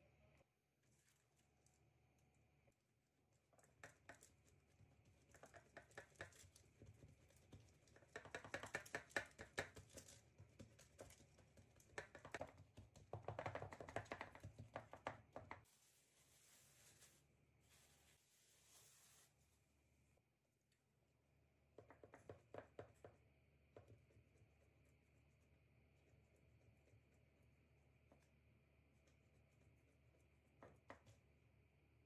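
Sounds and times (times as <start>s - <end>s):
hands patting dough on tray: 3.6s - 15.7s, 21.7s - 25.0s, 29.0s - 31.3s.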